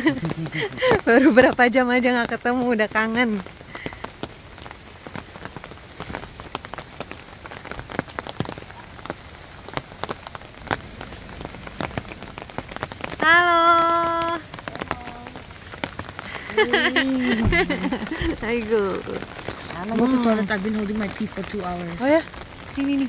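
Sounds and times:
rain tapping on an umbrella: 0:00.0 - 0:23.0
person calling out: 0:13.2 - 0:15.4, 0:16.4 - 0:19.2.

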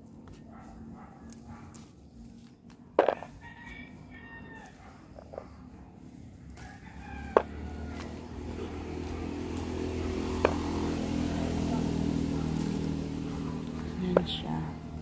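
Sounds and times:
rooster crowing: 0:03.1 - 0:05.0, 0:06.6 - 0:08.7
low engine hum: 0:04.8 - 0:15.0.

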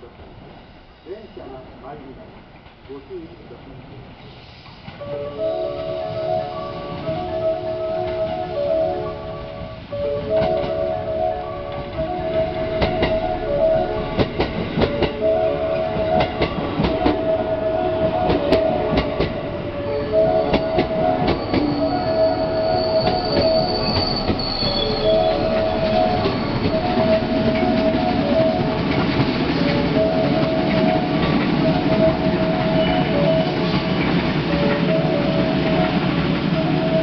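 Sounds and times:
train wheels clicking over rail joints: 0:10.2 - 0:10.9, 0:11.7 - 0:17.4, 0:18.0 - 0:37.0
two-note electronic tone: 0:19.8 - 0:29.0
high brake squeal: 0:21.2 - 0:27.0.

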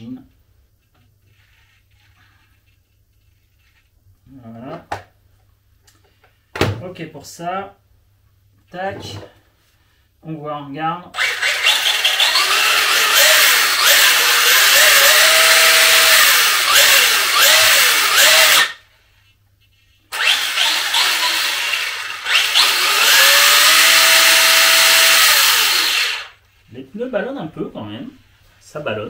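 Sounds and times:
rc car electric motor whining: 0:11.2 - 0:18.8, 0:20.1 - 0:26.4.

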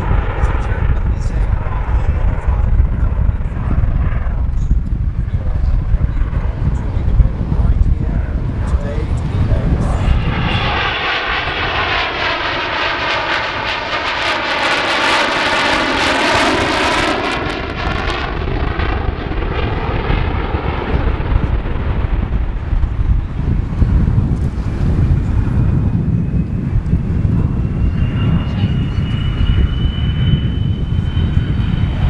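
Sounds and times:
jet aircraft flypast: 0:00.0 - 0:32.0.

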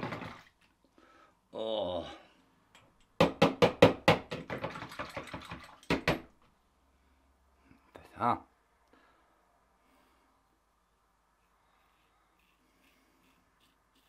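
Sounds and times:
shaving brush scrubbing: 0:11.8 - 0:14.0.

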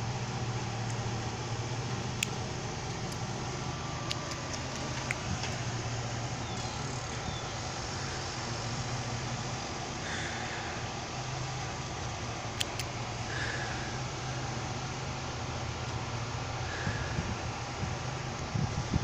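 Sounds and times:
low mechanical hum: 0:00.0 - 0:19.0
trimmers snipping clicks: 0:12.5 - 0:13.0.

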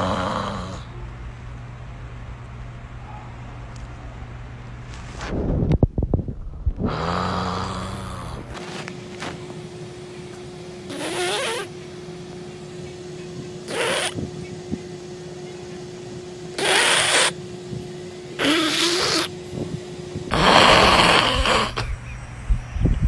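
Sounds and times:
microphone handling noise: 0:04.9 - 0:07.0.

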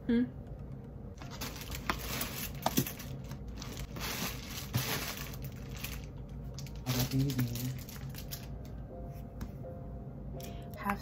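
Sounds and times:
rustling crinkling handling noise: 0:01.2 - 0:08.8.

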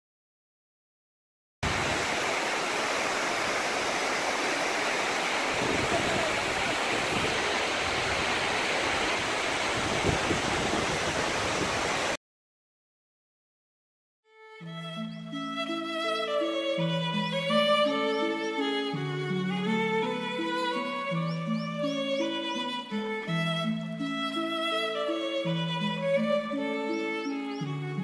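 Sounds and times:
waterfall rushing: 0:01.6 - 0:12.2, 0:16.3 - 0:28.0.

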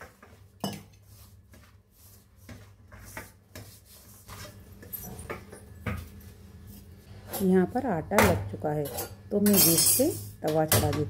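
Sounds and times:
hands kneading dough in bowl: 0:00.0 - 0:04.8.

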